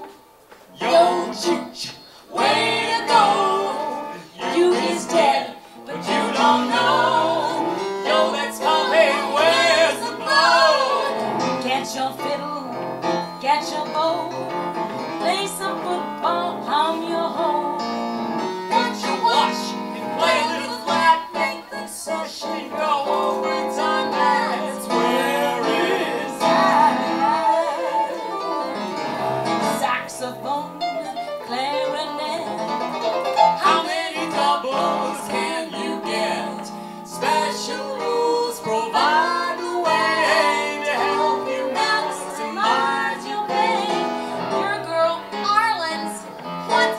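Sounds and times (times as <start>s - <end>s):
people singing: 0.7s - 12.7s, 18.7s - 30.8s, 33.5s - 46.9s
woman singing: 11.6s - 12.8s, 13.4s - 14.4s, 15.2s - 17.8s, 18.7s - 25.0s, 29.7s - 32.7s, 41.5s - 46.9s
electric keyboard: 22.5s - 46.9s.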